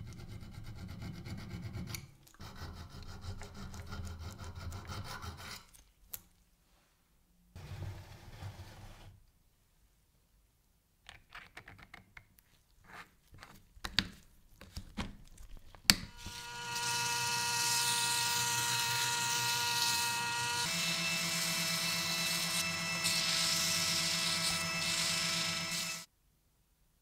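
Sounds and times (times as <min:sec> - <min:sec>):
drill motor spinning: 0:16.1 - 0:26.1.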